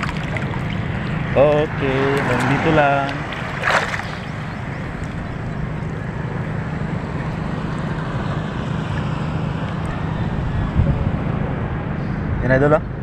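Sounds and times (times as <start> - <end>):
boat motor humming: 0.0 - 13.0
brief splash: 3.2 - 4.3
wind on microphone: 7.2 - 13.0.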